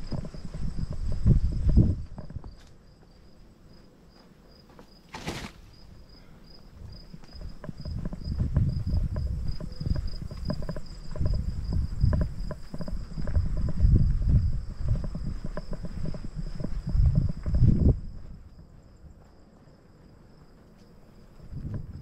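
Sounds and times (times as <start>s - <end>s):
insect chirping: 0.0s - 22.0s.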